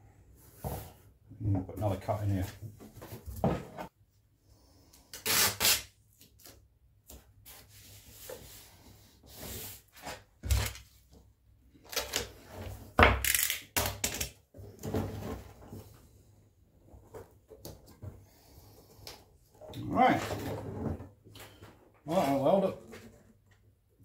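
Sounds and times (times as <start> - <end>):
duct tape ripping off roll: 5.1 - 6.6, 13.2 - 14.4.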